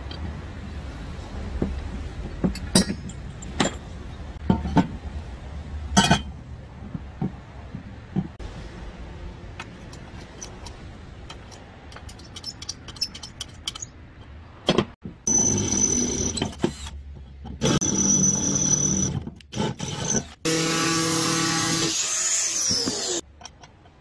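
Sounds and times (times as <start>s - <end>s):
metal parts clinking: 9.8s - 14.8s.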